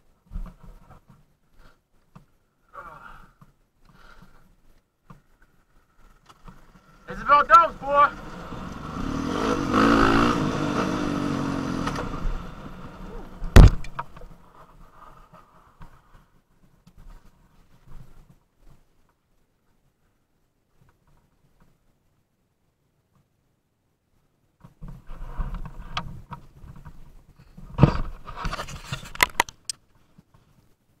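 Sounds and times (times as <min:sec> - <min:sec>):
dirt bike engine running: 0:06.7 - 0:14.0
sharp loud knock: 0:13.5 - 0:14.0
camera handling rubbing: 0:28.2 - 0:29.6.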